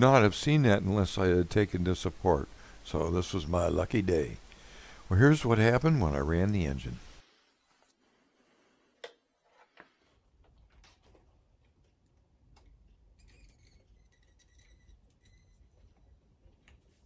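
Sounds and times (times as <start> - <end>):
faint clicks and taps: 9.8 - 13.1
faint low hum: 10.0 - 17.0.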